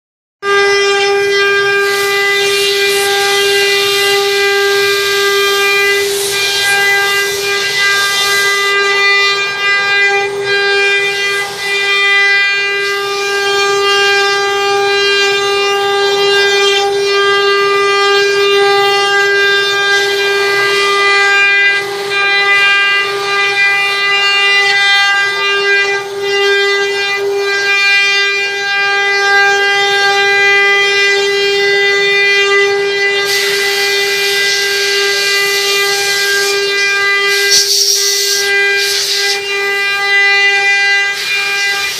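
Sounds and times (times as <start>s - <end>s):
router spindles whining: 0.5s - 12.8s, 31.5s - 41.9s
bits cutting wood hiss: 37.3s - 39.4s.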